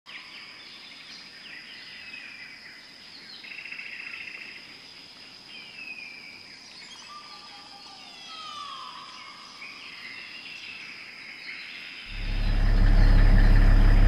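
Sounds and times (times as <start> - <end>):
birds singing: 0.1 - 14.0.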